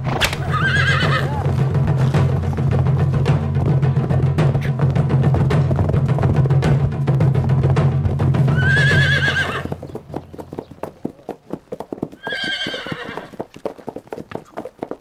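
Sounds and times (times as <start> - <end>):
background music with low drone: 0.0 - 10.4
hoofbeats clattering: 0.0 - 15.0
horse whinnying: 0.1 - 1.5, 8.5 - 9.9, 12.2 - 13.4.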